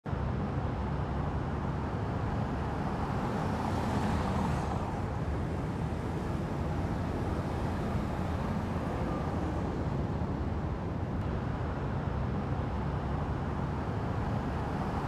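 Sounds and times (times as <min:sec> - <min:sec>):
traffic rumble: 0:00.1 - 0:15.0
car passing with tyre hiss: 0:02.4 - 0:10.2.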